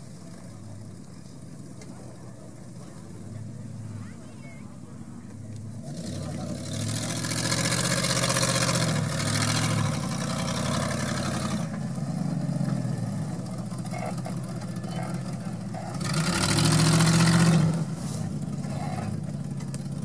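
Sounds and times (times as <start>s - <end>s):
car engine revving under load: 5.3s - 20.0s.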